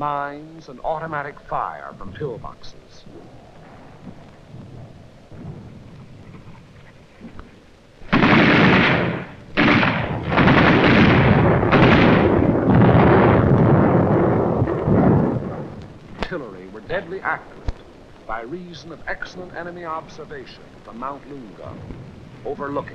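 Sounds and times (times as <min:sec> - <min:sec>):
low rumble: 0:01.0 - 0:22.9
loud explosion blasts: 0:08.0 - 0:22.9.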